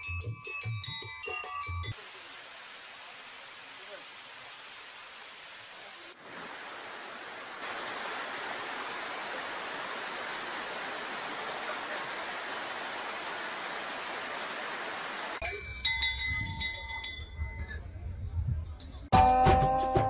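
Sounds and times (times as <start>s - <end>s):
waterfall rushing over rock: 2.0s - 15.4s.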